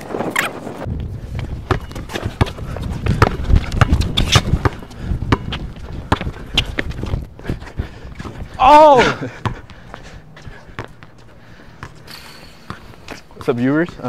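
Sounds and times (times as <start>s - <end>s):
basketball dribbling: 1.5s - 7.2s.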